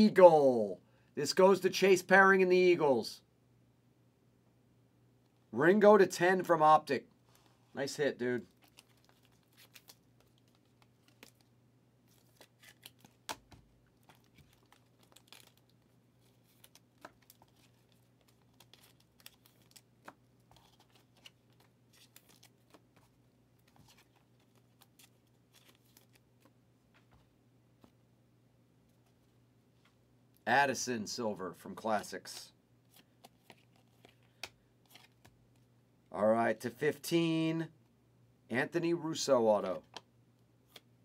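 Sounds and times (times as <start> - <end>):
trading cards handled by hand: 7.2 - 28.1, 32.0 - 35.7, 39.7 - 41.0.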